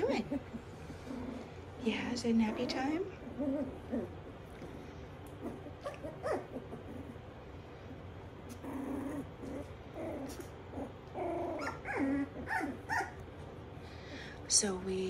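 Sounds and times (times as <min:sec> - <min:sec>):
puppies whimpering and whining: 0:02.3 - 0:04.4, 0:05.4 - 0:07.4, 0:08.5 - 0:13.3.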